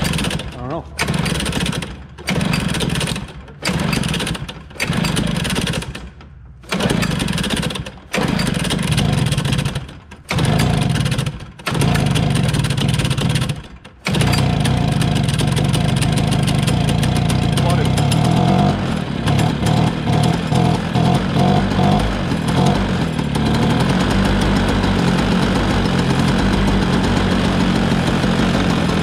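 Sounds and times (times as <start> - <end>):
snowmobile engine surging: 14.1 - 29.0.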